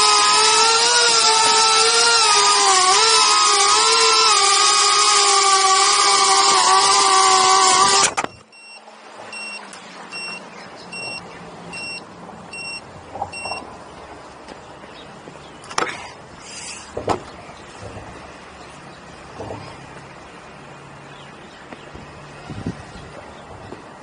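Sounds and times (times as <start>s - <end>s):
drone motors whining: 0.0s - 13.8s
short high electronic beeps: 8.2s - 11.2s, 11.8s - 12.0s, 12.6s - 12.8s, 13.4s - 13.6s.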